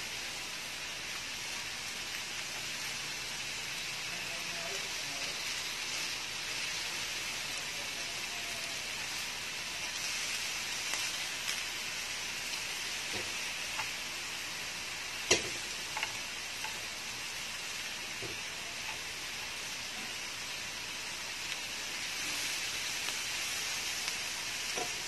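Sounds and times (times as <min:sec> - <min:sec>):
chicken sizzling on grill pan: 0:00.0 - 0:25.0
chopsticks clicking against pan: 0:15.3 - 0:16.8.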